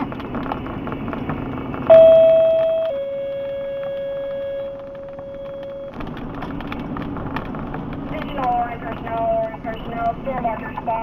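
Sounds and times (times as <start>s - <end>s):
moving car rumble: 0.0s - 11.0s
two-tone paging alert: 1.9s - 6.0s.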